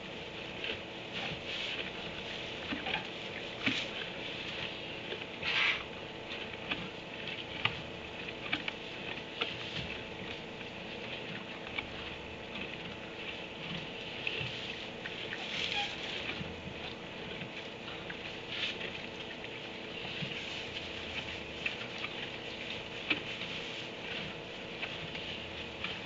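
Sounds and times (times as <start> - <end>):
hay rustling and crackling: 0.0 - 5.8, 13.2 - 16.6, 19.8 - 26.0
faint hum and hiss: 0.0 - 26.0.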